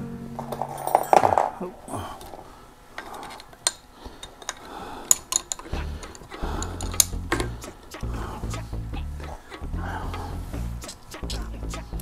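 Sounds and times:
metal tools clinking: 0:00.4 - 0:02.3, 0:03.0 - 0:07.2
background music with bass: 0:05.8 - 0:12.0.

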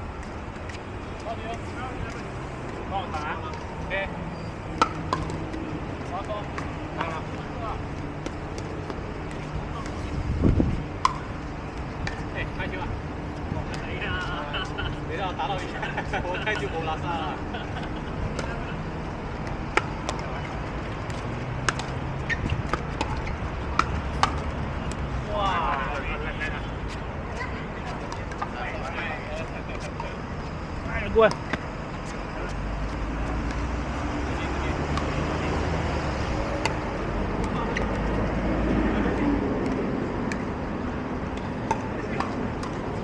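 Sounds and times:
paddles hitting plastic ball: 0:04.7 - 0:10.0, 0:19.4 - 0:25.1, 0:39.1 - 0:40.6, 0:41.2 - 0:43.0.

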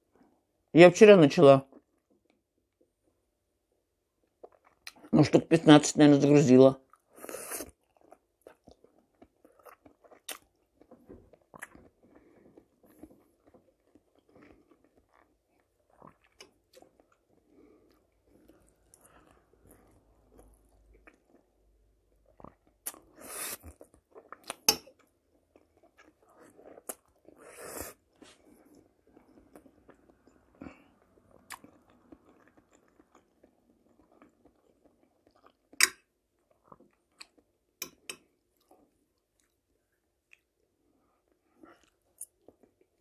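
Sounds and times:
wet chewing: 0:06.9 - 0:39.6.

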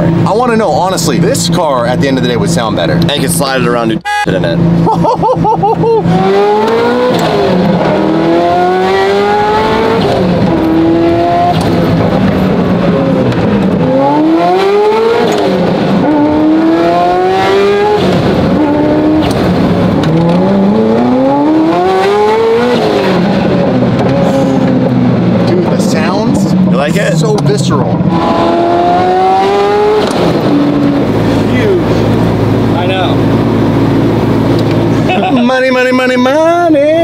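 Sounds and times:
car engine accelerating hard: 0:00.0 - 0:37.0
gear change: 0:01.6 - 0:37.0.

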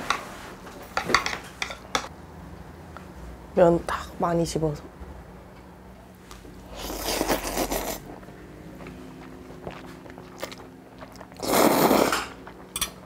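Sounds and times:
slurping noodles: 0:06.7 - 0:08.3, 0:09.2 - 0:12.6
chewing: 0:06.7 - 0:13.0.

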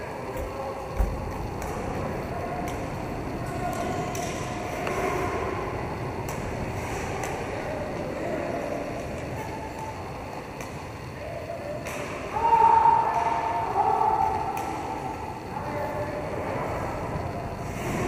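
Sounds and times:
skate wheels rolling: 0:00.0 - 0:11.2.

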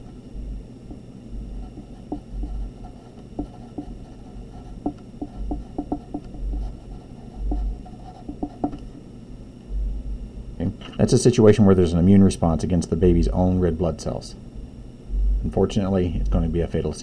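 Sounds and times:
pencil scratching on paper: 0:01.6 - 0:08.8.

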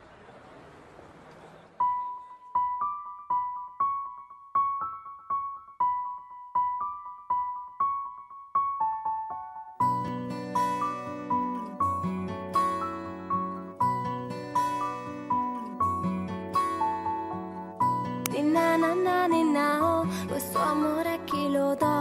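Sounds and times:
fuller musical accompaniment: 0:01.8 - 0:22.0
high piano melody: 0:01.8 - 0:22.0.

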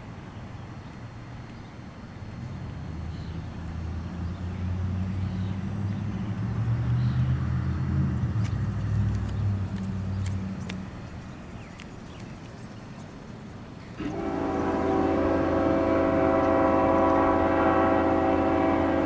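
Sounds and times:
vehicle engine passing by: 0:02.6 - 0:11.0.

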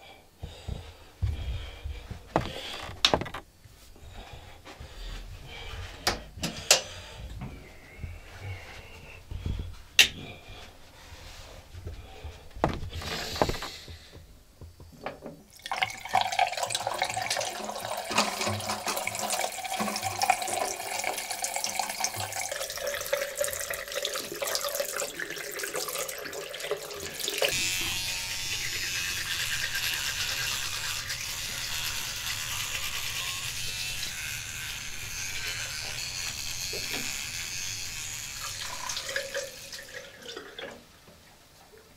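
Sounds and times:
knocks and clicks: 0:02.4 - 0:03.4
electric toothbrush buzzing: 0:12.6 - 0:14.2, 0:15.6 - 0:40.2
tap running into washbasin: 0:15.5 - 0:27.5, 0:38.6 - 0:40.8.

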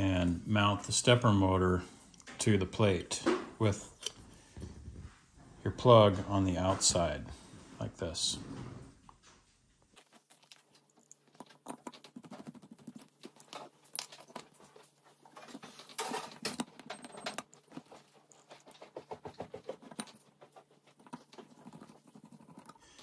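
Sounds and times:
metal parts being handled: 0:10.0 - 0:23.0.

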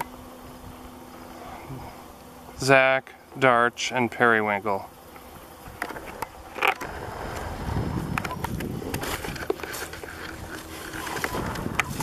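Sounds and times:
microphone handling noise: 0:05.8 - 0:12.0
footsteps through dry grass: 0:07.4 - 0:12.0.

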